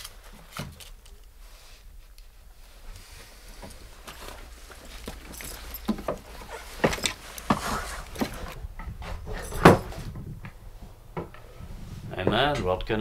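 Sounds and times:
footsteps on steps: 0:02.8 - 0:12.6.

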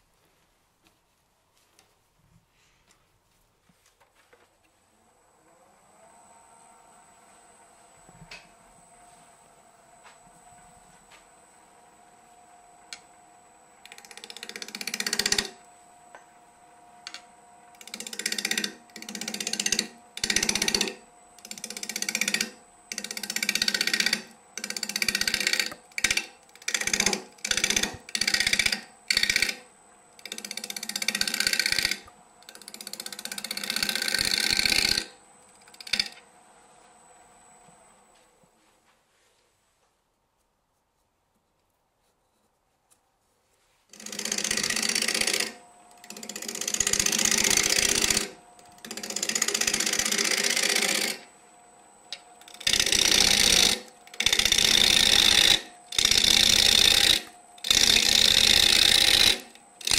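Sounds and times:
lathe humming: 0:11.5 - 0:37.6, 0:43.9 - 0:59.9
gouge cutting wood on lathe: 0:13.8 - 0:15.6, 0:17.8 - 0:36.2, 0:43.9 - 0:51.3, 0:52.4 - 0:59.9.

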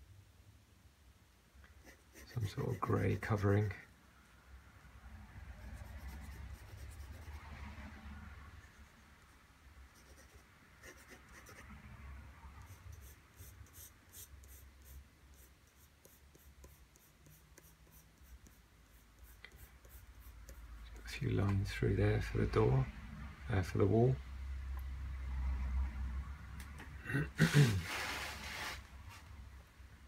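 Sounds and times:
pencil scratching on paper: 0:01.8 - 0:03.7, 0:05.6 - 0:07.6, 0:08.6 - 0:11.8, 0:12.6 - 0:21.2.

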